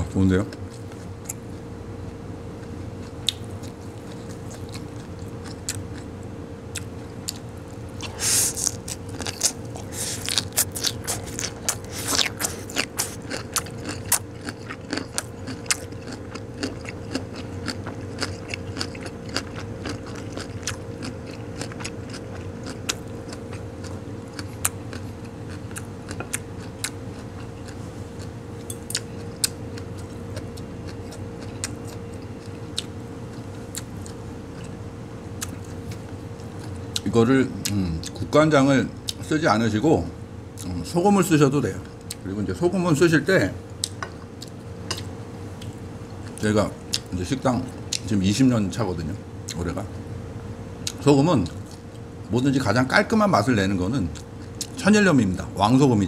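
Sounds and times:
steady hum: 0.0s - 56.0s
person chewing crunchy food: 2.6s - 38.2s, 43.7s - 48.1s, 54.1s - 54.8s.

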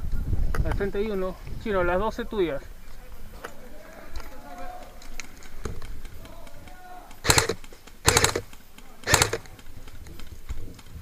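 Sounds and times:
airsoft rifle firing bursts: 7.2s - 9.6s.

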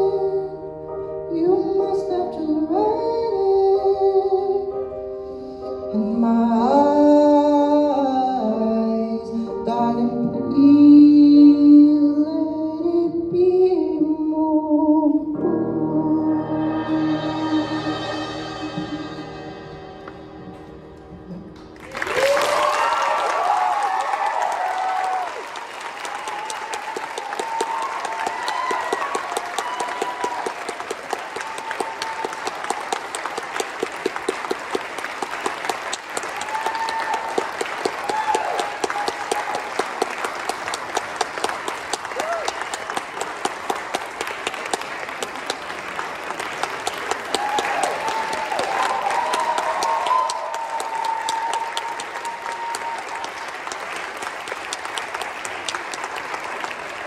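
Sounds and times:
audience clapping: 21.6s - 57.0s.

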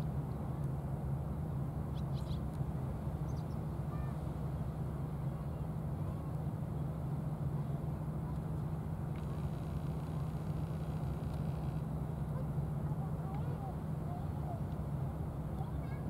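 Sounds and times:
faint bird chirps: 1.9s - 2.4s.

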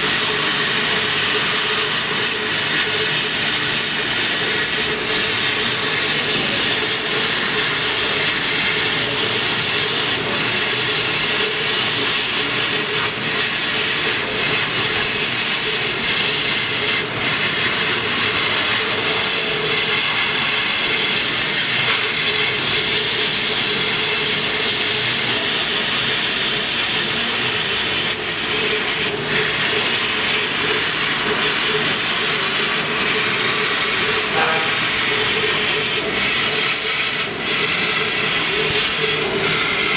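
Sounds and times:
machine hum: 28.2s - 39.9s.

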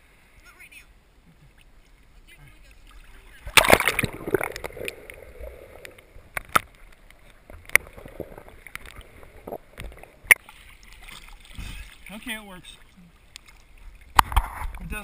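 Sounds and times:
splash into water: 2.9s - 5.6s, 10.2s - 12.1s
sharp underwater clicks: 3.4s - 11.2s, 13.3s - 14.8s.

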